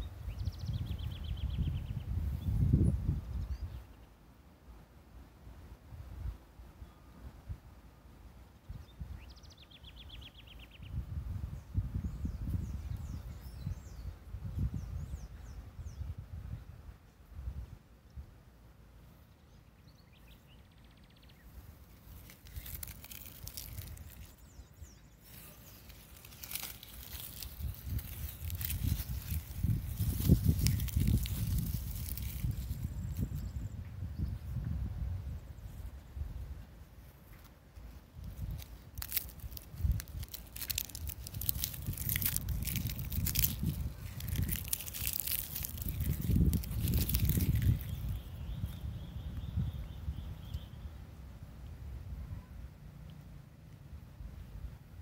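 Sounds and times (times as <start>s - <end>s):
wind rumble on microphone: 0.0s - 4.0s, 8.6s - 18.4s, 26.2s - 36.9s, 38.1s - 52.8s
wind rustling leaves: 0.0s - 55.0s
faint bird chirps: 8.6s - 17.2s, 47.4s - 51.0s
leaves rustling: 21.3s - 33.8s, 35.3s - 49.7s.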